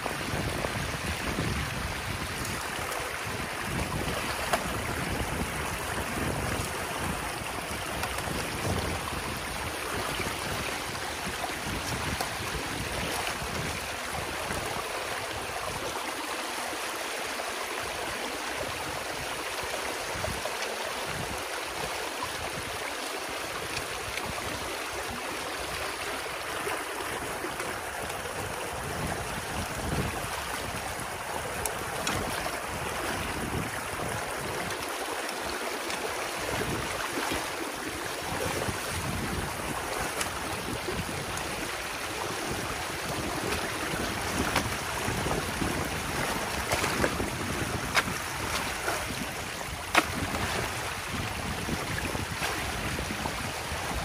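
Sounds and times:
water rushing through dam breach: 0:00.0 - 0:54.0
small splashes and knocks: 0:03.7 - 0:15.2, 0:29.6 - 0:53.5.

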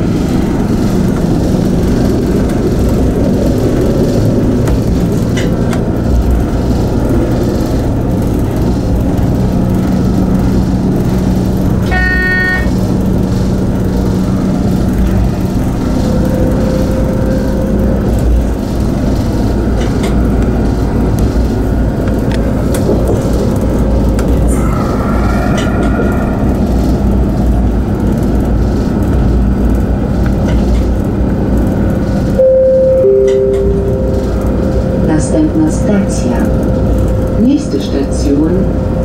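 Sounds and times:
train rumbling on rails: 0:00.0 - 0:39.0
faint whine: 0:13.6 - 0:29.5, 0:32.2 - 0:39.0
short high beep: 0:32.4 - 0:35.0.

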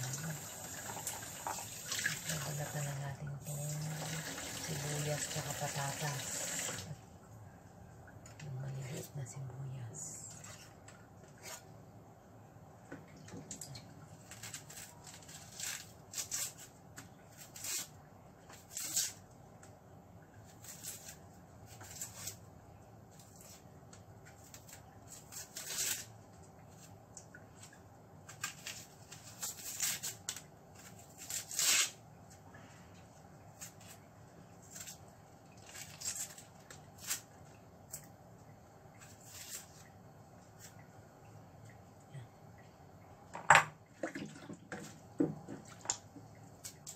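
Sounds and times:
onion skin being peeled: 0:14.1 - 0:19.8, 0:20.4 - 0:22.5, 0:23.1 - 0:32.0, 0:33.5 - 0:38.1, 0:38.9 - 0:39.9.

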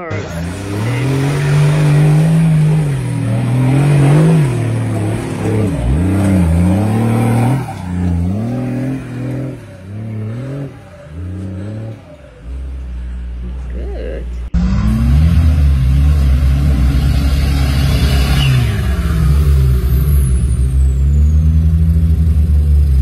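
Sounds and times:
engine revving under load: 0:00.0 - 0:13.6, 0:14.4 - 0:23.0.

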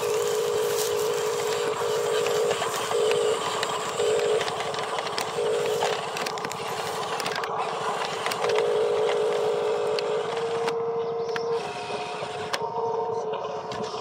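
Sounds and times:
wheels clicking on gravel: 0:00.0 - 0:10.5
toy truck motor whining: 0:00.0 - 0:14.0.

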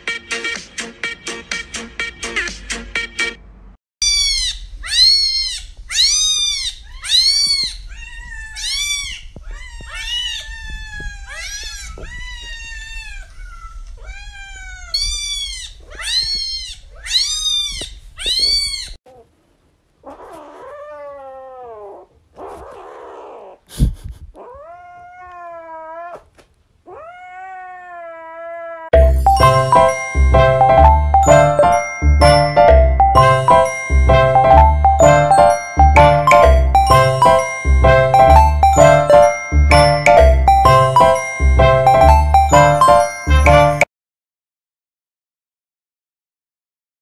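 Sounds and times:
music: 0:00.0 - 0:03.4, 0:29.0 - 0:43.9
lower cat meows: 0:24.4 - 0:26.3, 0:26.9 - 0:28.9.

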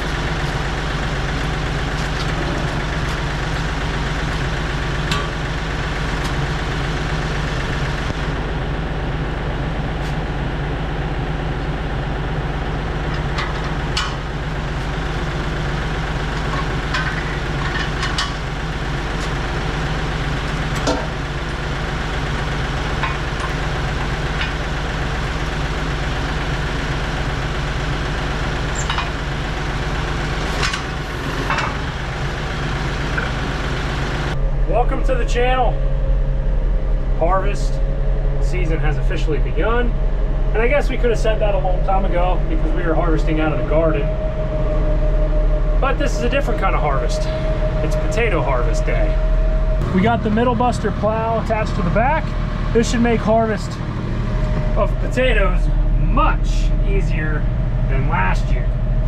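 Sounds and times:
tractor engine idling: 0:00.0 - 0:59.0
metal clanks and clicks: 0:05.0 - 0:05.5, 0:13.1 - 0:14.3, 0:16.3 - 0:18.5, 0:20.5 - 0:21.2, 0:22.9 - 0:24.6, 0:28.8 - 0:29.2, 0:30.4 - 0:31.9.

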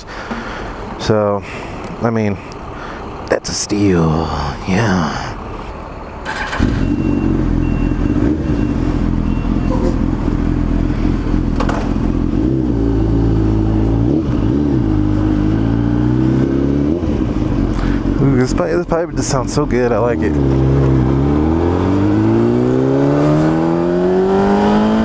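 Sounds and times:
motorcycle engine starting and idling: 0:06.1 - 0:12.4
motorcycle engine revving: 0:06.2 - 0:18.6, 0:20.1 - 0:25.0.

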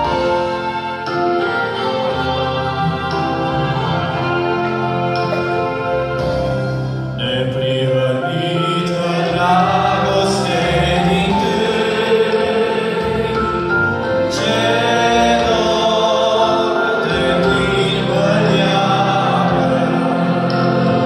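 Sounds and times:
instrumental accompaniment: 0:00.0 - 0:21.0
men singing: 0:07.2 - 0:21.0.

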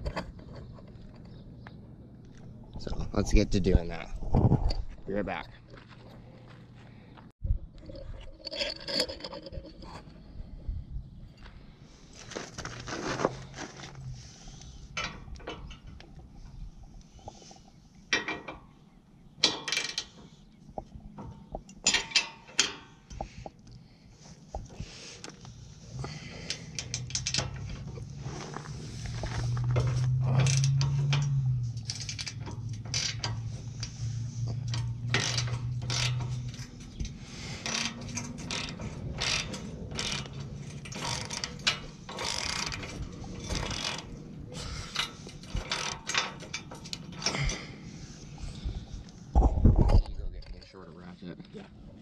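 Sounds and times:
hand ratchet clicking: 0:29.9 - 0:47.6.

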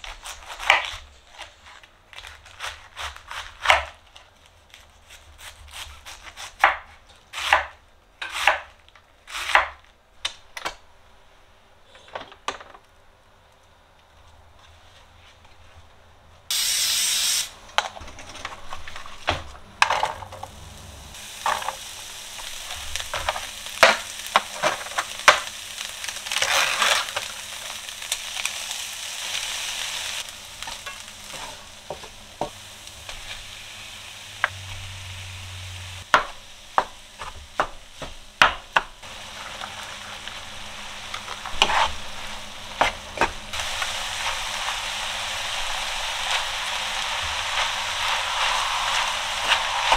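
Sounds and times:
food sizzling in frying pan: 0:16.5 - 0:17.5, 0:20.0 - 0:38.4, 0:39.0 - 0:49.9
loud hiss: 0:16.5 - 0:17.6, 0:20.6 - 0:26.3, 0:27.1 - 0:36.8, 0:43.4 - 0:49.9.

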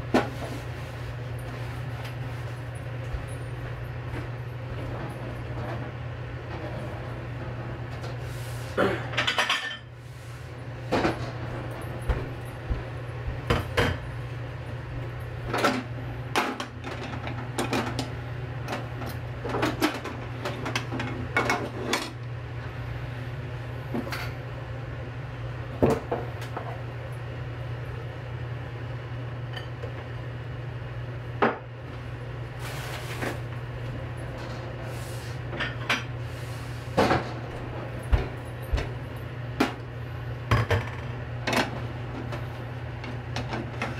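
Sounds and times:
dishes and utensils clinking: 0:09.1 - 0:09.9.

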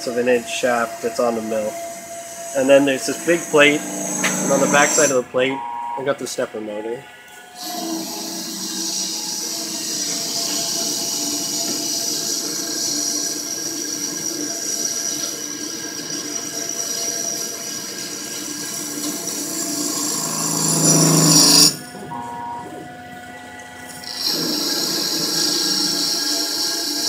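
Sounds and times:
lathe spindle whine: 0:00.0 - 0:27.0
hiss of metal cutting: 0:01.4 - 0:05.2, 0:07.6 - 0:15.5, 0:16.1 - 0:21.9, 0:24.0 - 0:27.0.

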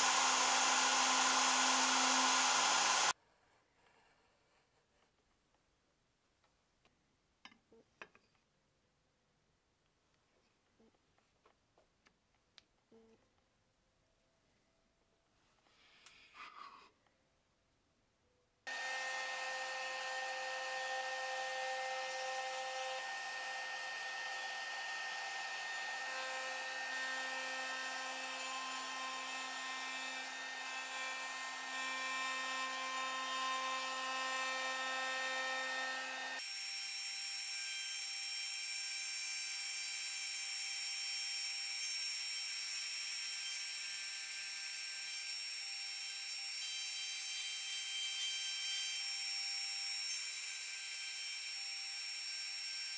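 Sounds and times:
router spindle whining: 0:00.0 - 0:03.2, 0:18.7 - 0:36.4.

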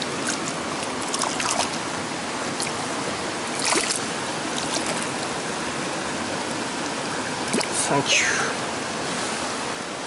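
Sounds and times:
water splashing: 0:00.0 - 0:05.4, 0:07.4 - 0:08.0
mountain stream over boulders: 0:00.0 - 0:10.0.

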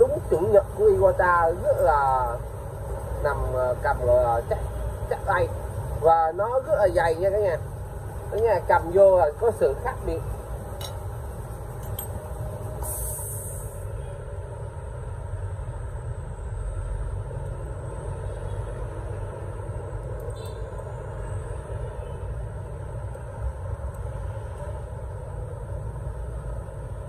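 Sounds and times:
low rumble of machinery or traffic: 0:00.0 - 0:27.0
brief high hiss: 0:12.8 - 0:13.9.

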